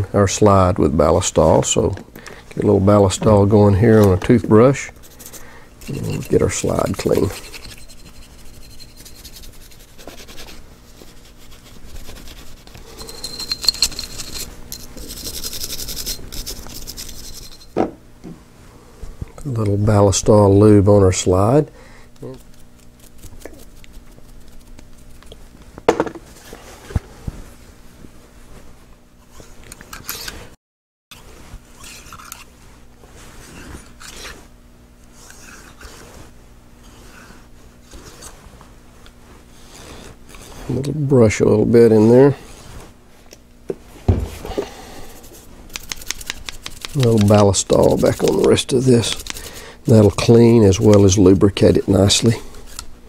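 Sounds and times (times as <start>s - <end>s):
toothbrush scrubbing metal: 4.8s - 17.7s, 22.2s - 25.1s, 45.1s - 52.8s
short knock: 44.1s - 44.4s.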